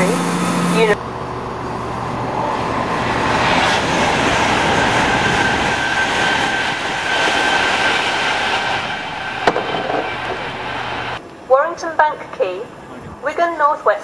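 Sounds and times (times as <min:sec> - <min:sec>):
thin high whine: 0:00.0 - 0:11.2
train passing at speed: 0:00.0 - 0:13.4.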